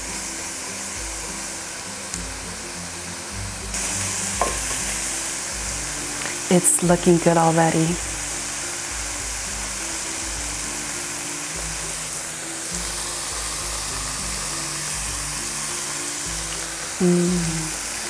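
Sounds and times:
background music with bass line: 0.0s - 18.0s
food sizzling in a pan: 0.0s - 18.0s.

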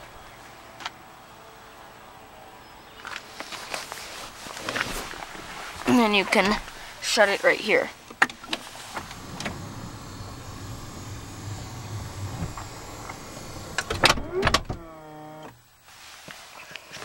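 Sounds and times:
low motor hum: 8.5s - 15.6s
short whine: 8.7s - 15.5s
door latching clunk: 12.2s - 15.6s.

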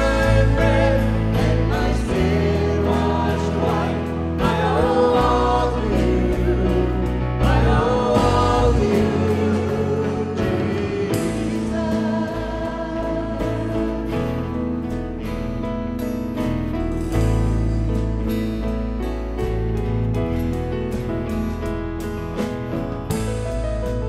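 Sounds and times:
voices singing: 0.0s - 14.3s
instrumental accompaniment: 0.0s - 24.0s.

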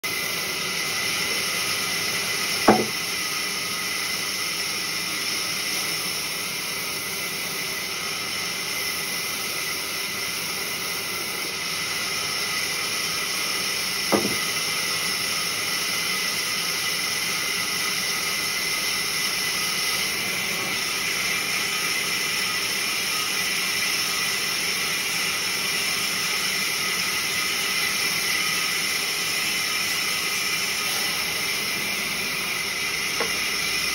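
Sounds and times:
sharp knocks: 2.6s - 3.0s, 14.1s - 14.4s.

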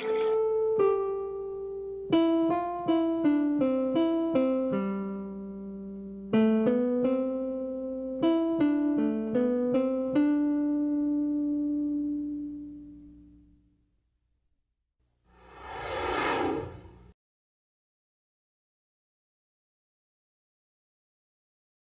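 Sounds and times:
keyboard melody: 0.0s - 13.5s.

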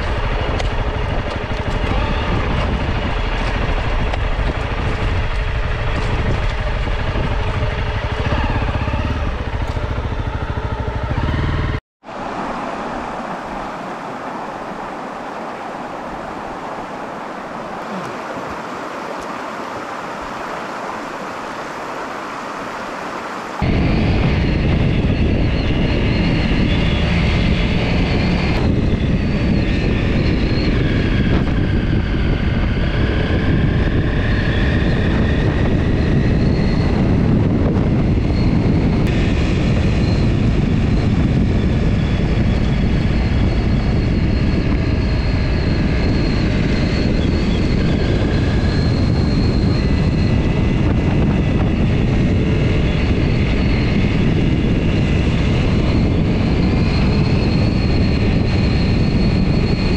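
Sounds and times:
motorcycle engine running: 0.0s - 11.8s
wind rushing: 0.0s - 59.9s.

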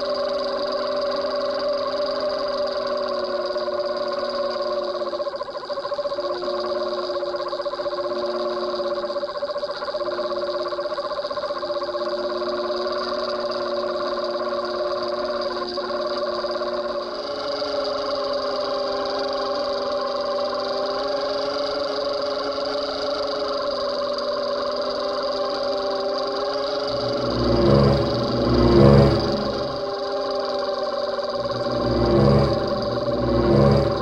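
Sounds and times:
boat engine drone underwater: 26.8s - 29.9s, 31.4s - 34.0s.

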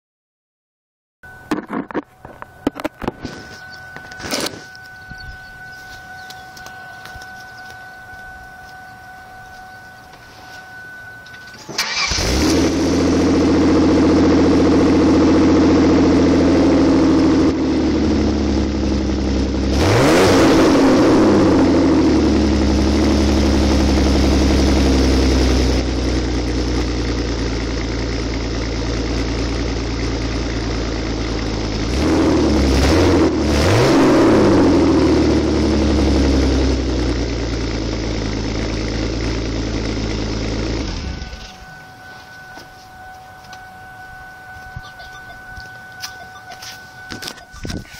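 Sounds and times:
loud car engine cranking and revving: 11.2s - 44.8s.

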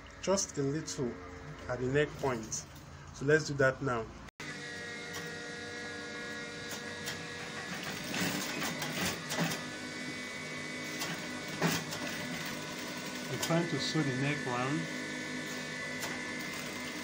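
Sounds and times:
sewing machine running: 6.3s - 17.0s.

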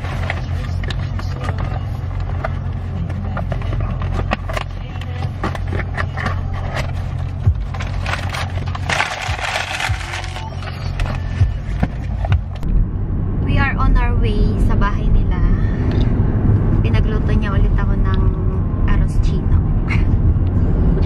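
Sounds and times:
cardboard and paper crinkling: 0.0s - 12.6s
low car cabin rumble: 0.0s - 21.0s.

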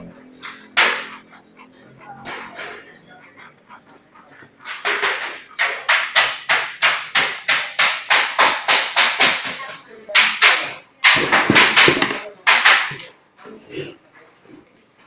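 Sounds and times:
metal snips cutting sheet metal: 0.4s - 1.2s, 4.7s - 9.6s.

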